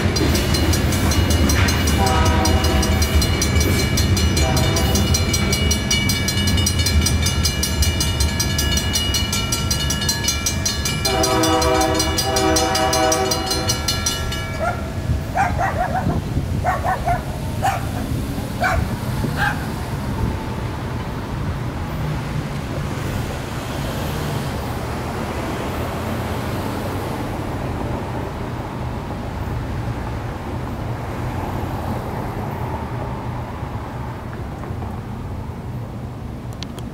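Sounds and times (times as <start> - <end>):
crossing bells ringing: 0.0 - 15.9
dog barking: 14.6 - 18.0, 18.6 - 19.7.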